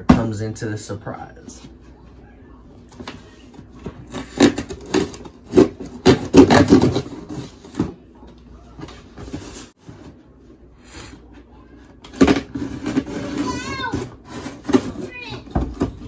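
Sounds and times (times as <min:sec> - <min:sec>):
cardboard box scraping and crackling: 0:12.4 - 0:15.4.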